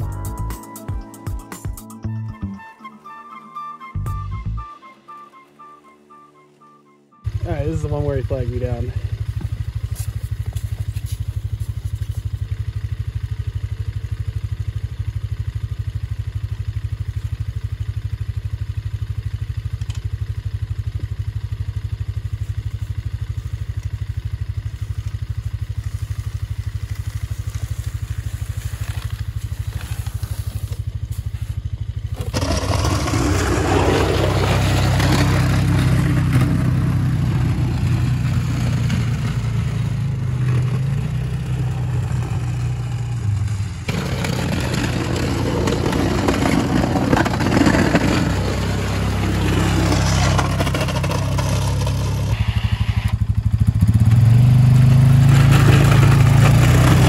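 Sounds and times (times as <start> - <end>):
engine running at low revs: 3.9 - 57.0
plow blade scraping snow: 4.8 - 12.7, 22.1 - 57.0.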